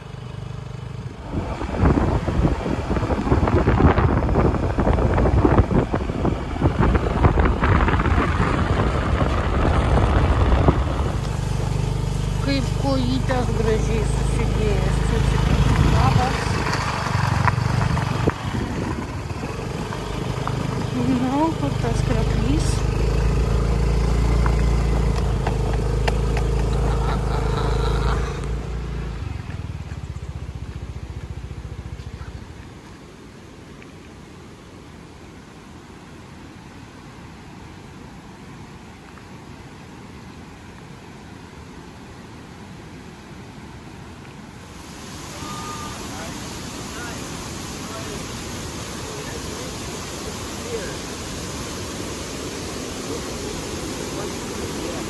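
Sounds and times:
low engine hum: 0.0s - 55.0s
wind noise: 1.1s - 21.6s.

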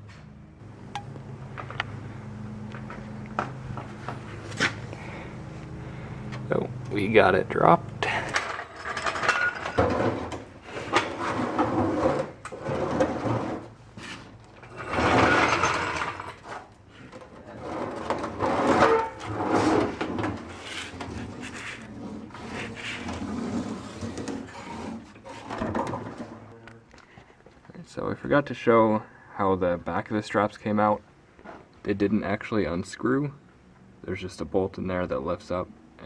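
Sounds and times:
metal tank scraping on concrete: 8.4s - 16.7s, 17.4s - 26.5s.

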